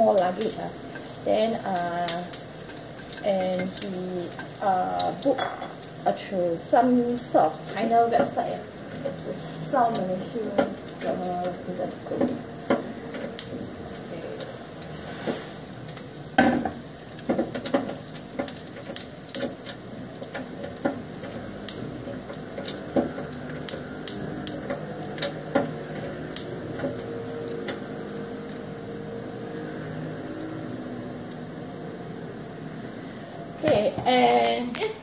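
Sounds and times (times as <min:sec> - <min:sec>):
utensil scraping frying pan: 0:00.0 - 0:28.8
low frying sizzle: 0:00.0 - 0:35.0
metal clinking on pan: 0:02.7 - 0:05.8.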